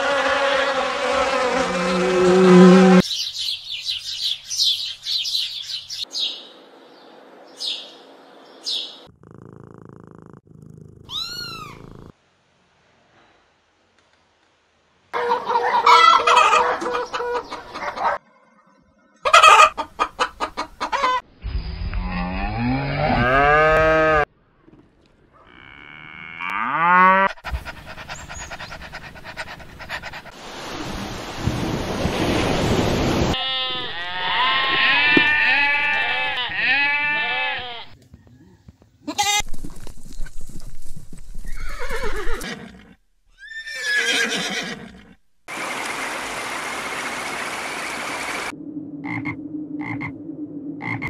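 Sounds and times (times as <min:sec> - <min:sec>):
animal calls: 0:11.0 - 0:12.0
cattle mooing: 0:22.2 - 0:24.2
goats bleating: 0:33.4 - 0:38.0.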